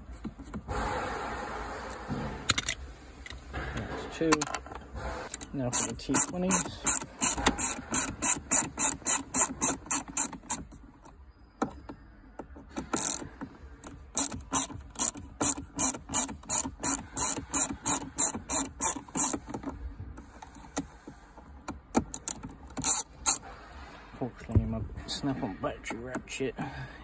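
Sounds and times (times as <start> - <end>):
hand ratchet clicking: 5.3 - 10.8, 12.8 - 19.7, 21.6 - 23.4.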